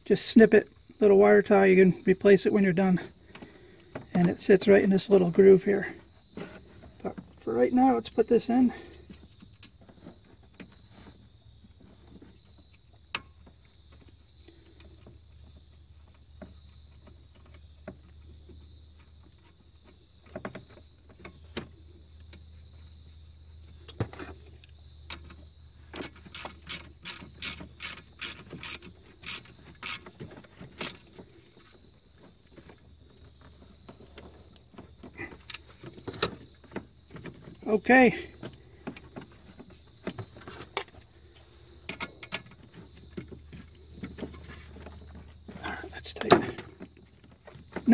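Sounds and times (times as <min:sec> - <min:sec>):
ratchet clicking: 0:26.0 - 0:30.1.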